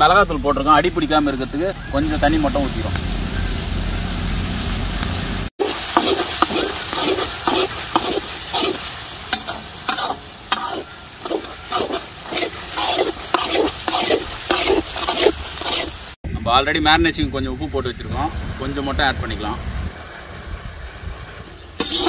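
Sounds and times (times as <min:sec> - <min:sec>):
masala sizzling: 0:00.0 - 0:16.2, 0:18.8 - 0:22.0
spoon scraping a pan: 0:05.6 - 0:16.2, 0:21.8 - 0:22.0.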